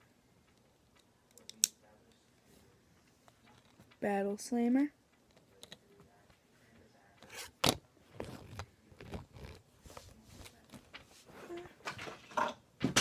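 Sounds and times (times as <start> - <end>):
plastic toy handling: 5.2 - 5.9, 7.2 - 11.2
clicks and scrapes: 7.2 - 11.1.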